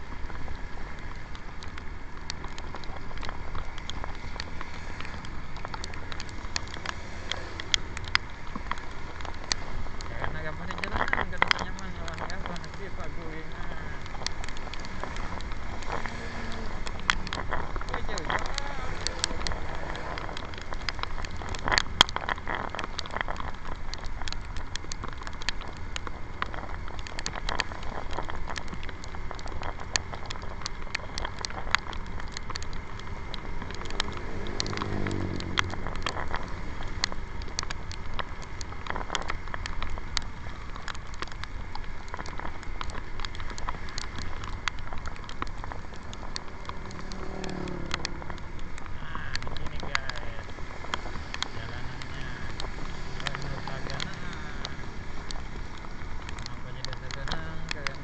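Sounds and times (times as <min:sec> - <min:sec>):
raindrops clicking on camera: 0:00.0 - 0:58.0
wind and road noise: 0:00.0 - 0:58.0.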